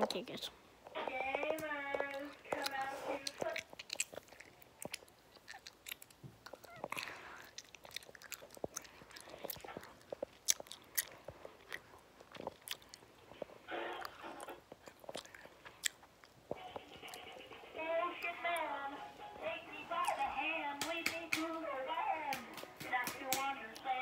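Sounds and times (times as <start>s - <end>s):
mouth clicks and smacking: 1.3s - 17.5s.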